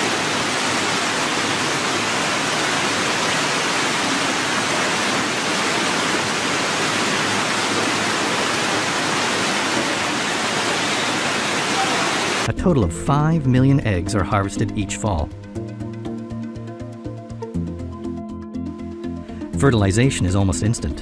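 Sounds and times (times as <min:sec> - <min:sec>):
running water rushing: 0:00.0 - 0:12.5.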